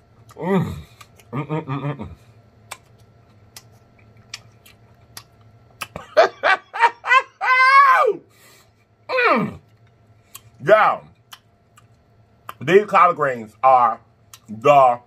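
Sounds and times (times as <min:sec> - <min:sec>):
man chewing: 0:00.0 - 0:01.8, 0:02.4 - 0:06.0, 0:09.6 - 0:10.6, 0:11.2 - 0:12.6, 0:14.3 - 0:14.5
mouth clicks and smacks: 0:00.2 - 0:01.3, 0:02.6 - 0:06.0, 0:09.7 - 0:10.6, 0:11.2 - 0:12.6, 0:14.3 - 0:14.5.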